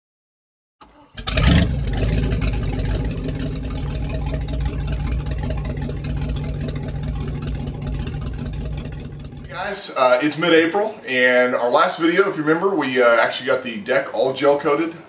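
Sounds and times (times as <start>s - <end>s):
motorboat engine running: 1.1s - 9.8s.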